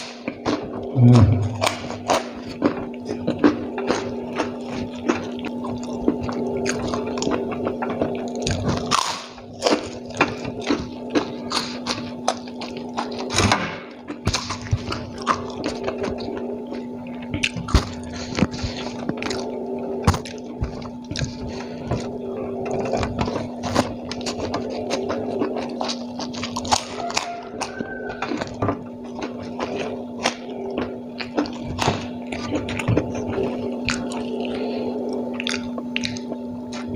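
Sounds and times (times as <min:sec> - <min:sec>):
steady low hum: 0:00.0 - 0:36.9
fingers squishing food on paper: 0:01.6 - 0:13.4, 0:14.1 - 0:36.9
wet chewing and lip smacks: 0:22.8 - 0:36.9.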